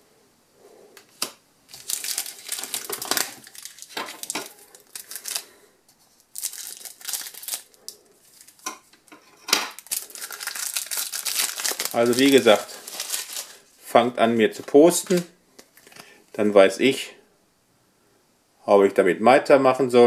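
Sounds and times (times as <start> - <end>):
foil wrapper crinkling: 1.7 - 8.7, 9.7 - 13.8, 14.9 - 16.1.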